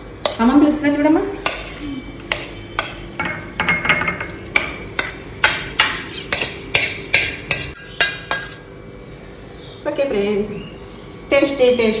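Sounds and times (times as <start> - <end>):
spoon scraping a pan: 1.4 - 8.7.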